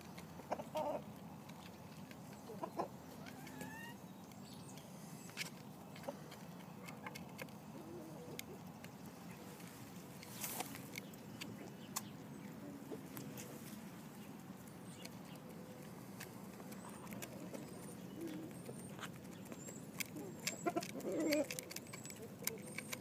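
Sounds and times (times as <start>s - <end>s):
hen call: 2.5s - 4.0s
beaks tapping feed bowl: 14.8s - 23.0s.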